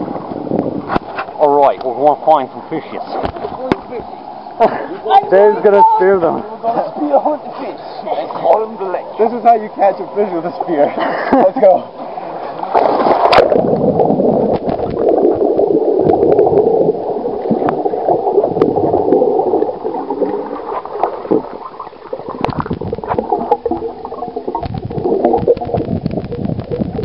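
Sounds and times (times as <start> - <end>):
muffled underwater gurgling: 11.8 - 27.0.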